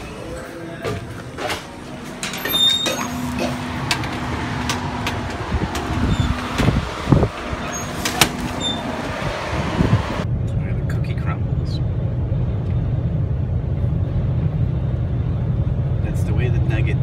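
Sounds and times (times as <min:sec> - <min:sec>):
knocks and clicks: 0:03.8 - 0:07.0.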